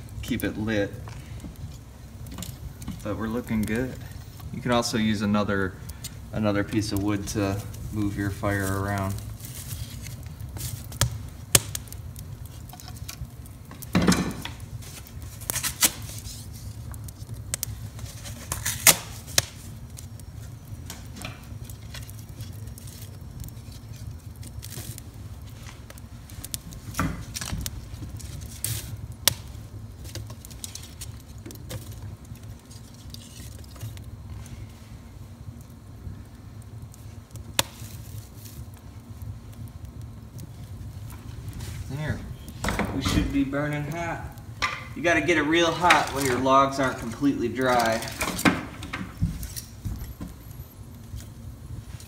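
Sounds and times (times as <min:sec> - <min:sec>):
steady low rumble: 0:00.0 - 0:15.5
fire crackling and popping: 0:00.0 - 0:52.0.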